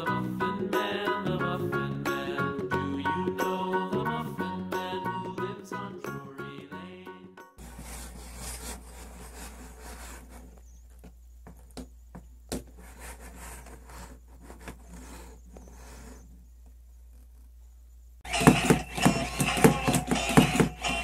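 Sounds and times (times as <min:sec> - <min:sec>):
hands rubbing plastic toys: 0:07.6 - 0:17.6.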